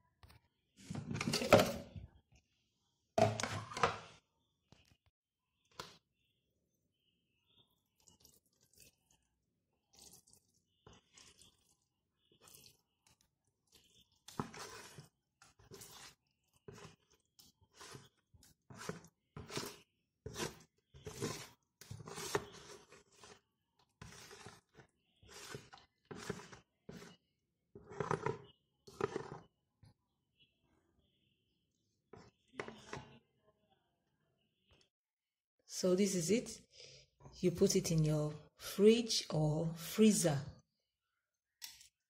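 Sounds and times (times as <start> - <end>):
wet paste scooped and poured: 7.0 - 29.6.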